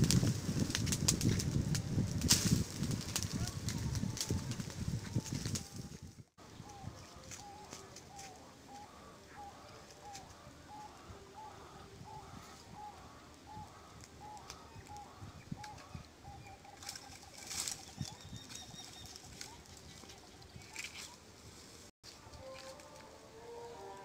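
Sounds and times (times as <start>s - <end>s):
bird calling: 6.4s - 21.3s.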